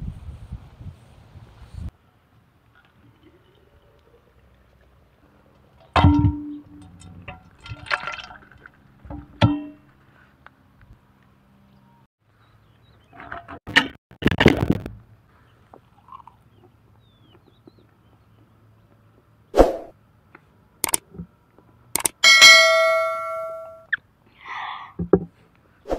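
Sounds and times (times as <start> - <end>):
stew pouring and sloshing: 7.3 - 9.1.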